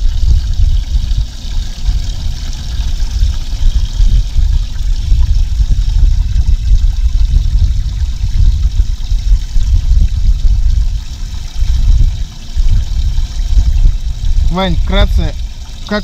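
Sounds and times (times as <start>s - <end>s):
low uneven rumble: 0.0s - 16.0s
water trickling and sloshing: 0.0s - 16.0s.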